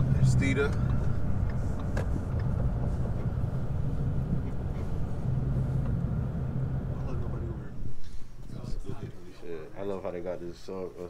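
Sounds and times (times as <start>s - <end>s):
car engine and road rumble: 0.0s - 8.8s
faint hum: 0.0s - 11.0s.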